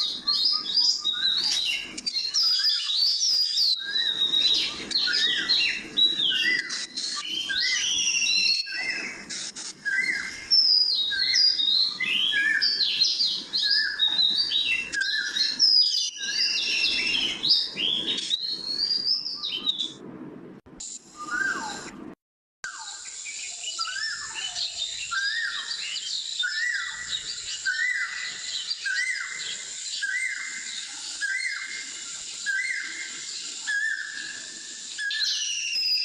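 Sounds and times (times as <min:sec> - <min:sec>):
birds chirping and singing: 0:00.0 - 0:20.0, 0:21.2 - 0:21.9, 0:22.7 - 0:36.0.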